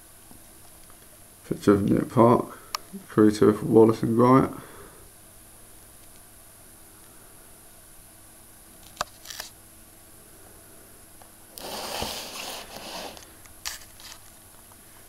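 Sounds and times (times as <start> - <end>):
cardboard box scraping on table: 11.6 - 13.3.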